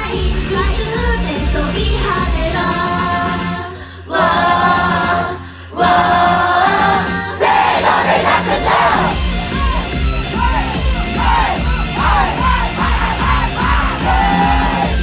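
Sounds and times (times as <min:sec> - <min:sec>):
women singing: 0:00.0 - 0:09.1, 0:11.2 - 0:15.0
pop song backing track: 0:00.0 - 0:15.0
audience shouting: 0:07.4 - 0:15.0.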